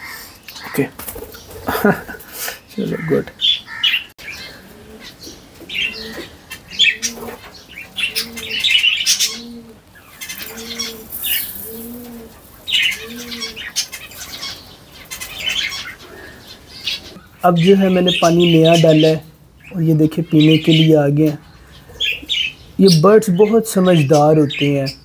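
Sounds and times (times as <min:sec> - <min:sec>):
parrots chirping and squawking: 0:00.0 - 0:25.0
dove cooing: 0:01.1 - 0:17.2.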